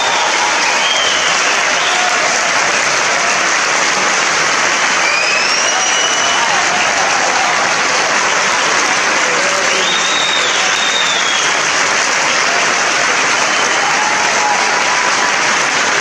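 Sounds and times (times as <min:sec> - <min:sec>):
faint voices or whistles: 0:00.0 - 0:02.1, 0:05.0 - 0:06.6, 0:09.7 - 0:11.6
audience applauding: 0:00.0 - 0:16.0.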